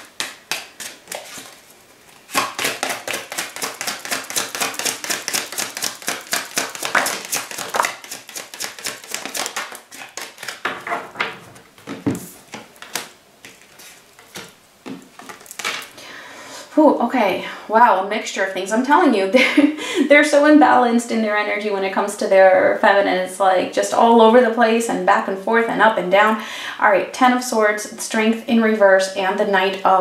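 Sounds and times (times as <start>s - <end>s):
cards being shuffled: 0.0s - 10.8s, 11.8s - 16.0s.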